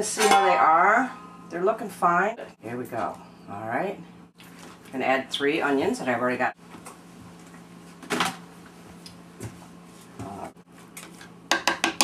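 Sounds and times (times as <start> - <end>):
metal pot and utensils clattering: 0.0 - 1.4
faint steady hum: 0.0 - 11.5.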